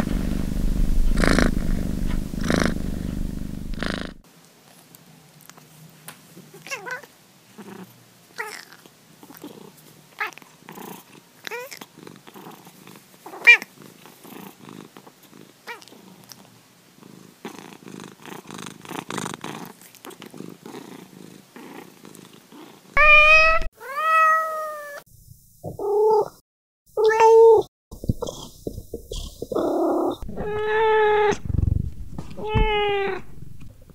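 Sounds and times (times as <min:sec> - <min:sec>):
cat purring: 0:00.0 - 0:04.2, 0:07.5 - 0:23.7, 0:27.4 - 0:33.9
cat meowing: 0:13.3 - 0:13.7, 0:23.0 - 0:25.0, 0:27.0 - 0:27.6, 0:30.1 - 0:31.5, 0:32.3 - 0:33.4.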